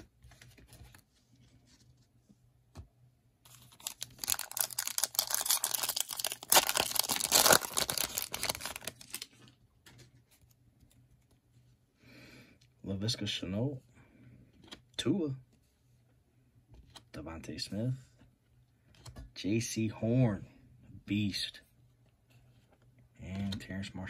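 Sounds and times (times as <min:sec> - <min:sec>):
foil pack crinkling and tearing: 0:03.5 - 0:09.4.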